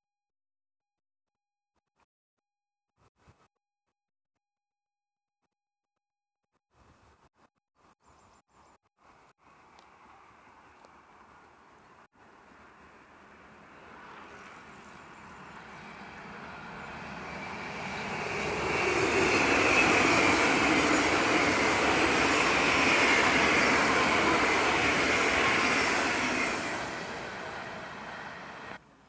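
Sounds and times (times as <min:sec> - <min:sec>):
high train whine: 0:12.2 - 0:29.0
train wheels rushing on rails: 0:13.8 - 0:28.8.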